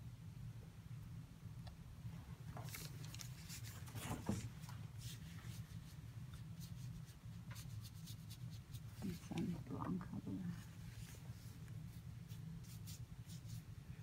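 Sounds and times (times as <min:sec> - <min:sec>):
low steady hum: 0:00.0 - 0:14.0
paper rustling: 0:02.5 - 0:05.9
brush scratching paper: 0:05.0 - 0:09.7, 0:10.6 - 0:13.7.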